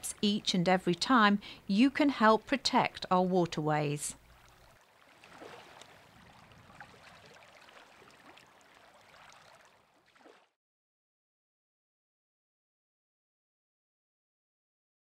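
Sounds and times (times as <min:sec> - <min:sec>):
wind: 0:00.0 - 0:10.6
rippling water: 0:04.2 - 0:10.6.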